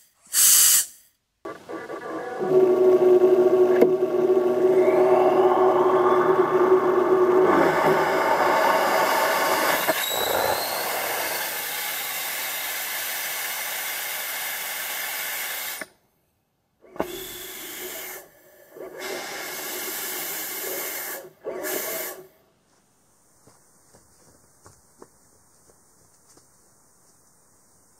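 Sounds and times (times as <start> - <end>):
pressurised gas hissing: 0.0 - 1.0, 6.5 - 15.9, 17.0 - 22.4.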